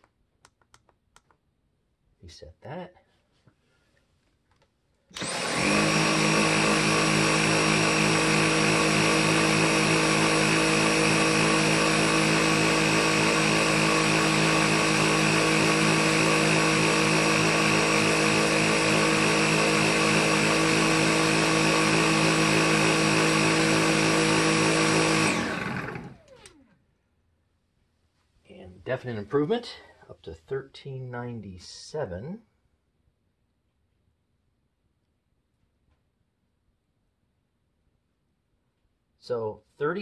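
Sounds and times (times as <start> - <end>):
vacuum cleaner whine and hum: 5.1 - 26.8
vacuum winding down: 5.1 - 26.8.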